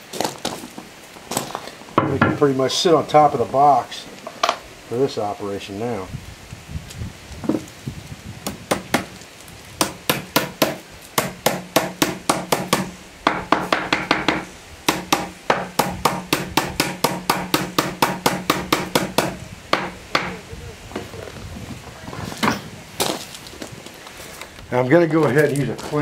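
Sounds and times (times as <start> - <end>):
hammer tapping metal into wood: 9.8 - 20.4.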